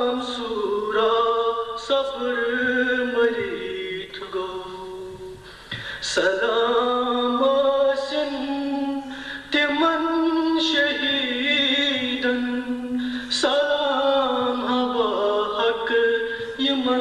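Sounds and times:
man chanting a lament: 6.0s - 17.0s.

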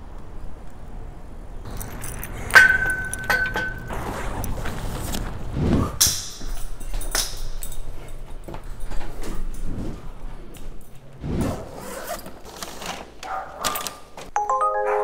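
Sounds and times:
zipper being run: 11.2s - 13.0s.

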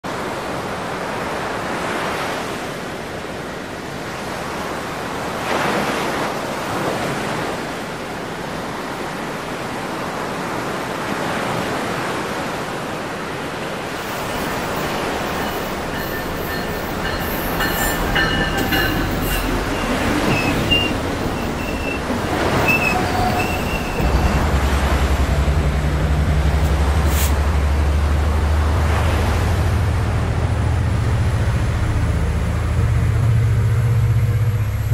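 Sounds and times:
waves washing on shore: 0.1s - 34.9s
diesel locomotive drone: 13.6s - 34.9s
train wheels squealing and clicking: 14.0s - 24.7s.

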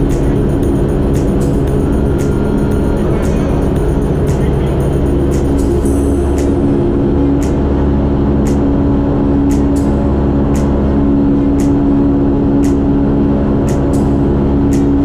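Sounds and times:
light aircraft engine droning: 0.0s - 15.0s.

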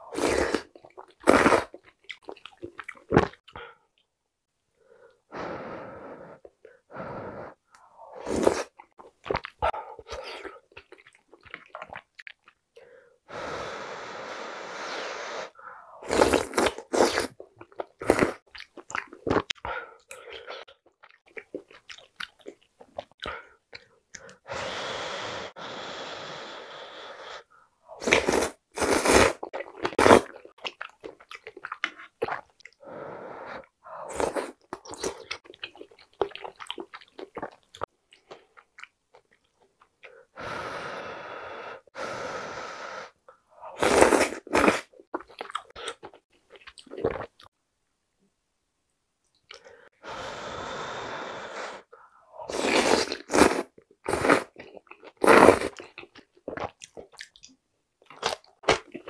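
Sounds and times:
slurping soup and noodles: 0.0s - 3.7s, 5.4s - 12.3s, 13.3s - 20.7s, 24.2s - 38.6s, 40.1s - 46.3s, 49.5s - 57.2s
wet chewing: 34.2s - 39.7s.

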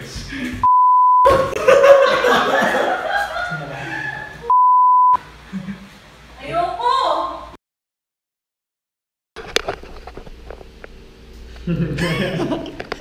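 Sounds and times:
censor bleep: 0.6s - 1.4s, 4.5s - 5.2s
laughter: 1.3s - 4.4s, 11.6s - 13.0s
people talking: 6.4s - 7.4s.

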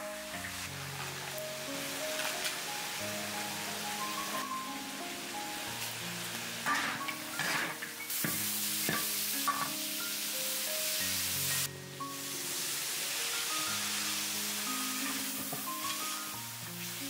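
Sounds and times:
meat sizzling in a wok: 0.0s - 17.0s
metal spatula scraping wok: 6.6s - 9.8s, 14.9s - 16.3s
sauce hitting hot pan: 6.6s - 9.9s, 15.0s - 16.0s.

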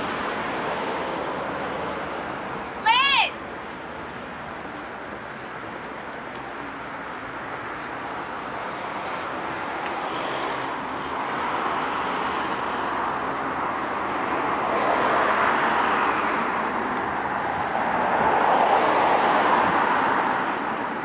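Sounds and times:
cars passing on street: 0.0s - 21.0s.

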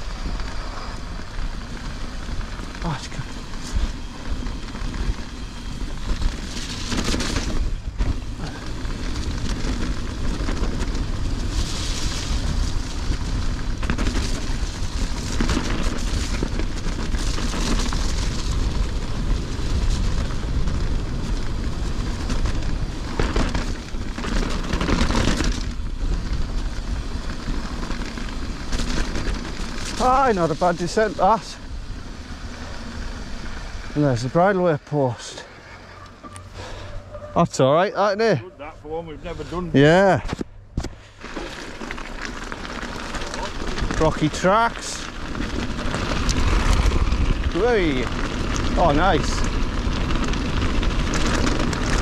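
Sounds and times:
bike tyres rumbling: 0.0s - 52.0s
wind buffeting microphone: 42.8s - 52.0s.

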